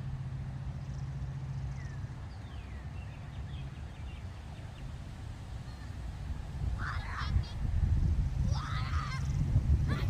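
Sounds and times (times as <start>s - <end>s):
low hum: 0.0s - 6.6s
steady low rumble: 0.0s - 10.0s.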